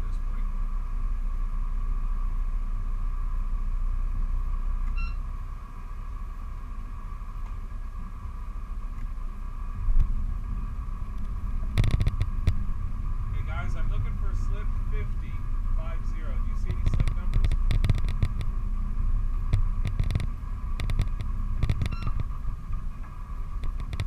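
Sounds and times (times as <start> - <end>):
boat engines rumbling: 0.0 - 24.0
short beep: 4.9 - 5.3, 21.9 - 22.2.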